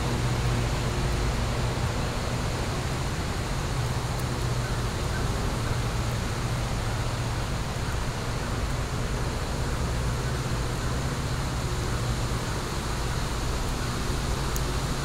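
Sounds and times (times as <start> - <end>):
fire crackles: 10.8 - 15.0.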